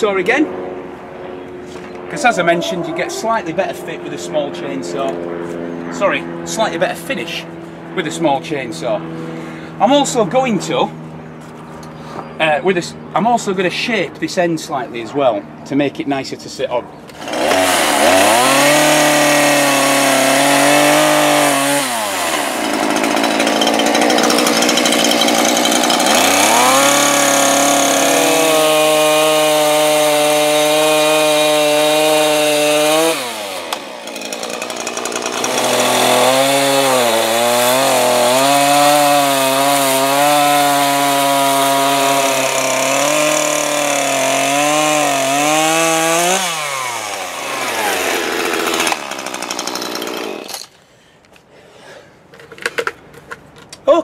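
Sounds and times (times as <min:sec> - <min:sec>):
chainsaw cutting wood: 0:17.1 - 0:50.8.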